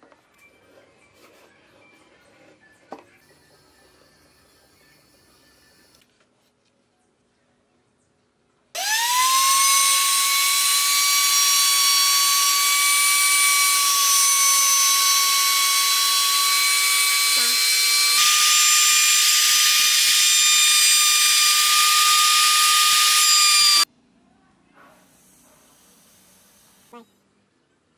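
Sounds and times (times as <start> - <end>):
router motor whining: 8.8 - 23.9.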